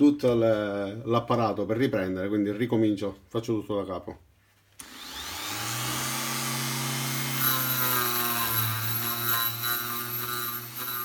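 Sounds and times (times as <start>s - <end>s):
die grinder whining: 4.8s - 11.0s.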